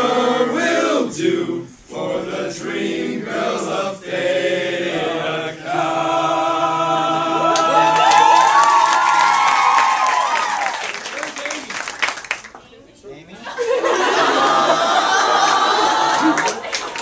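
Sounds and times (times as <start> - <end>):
young men singing a cappella: 0.0 - 8.0
cheering and clapping: 7.4 - 12.7, 14.0 - 17.0.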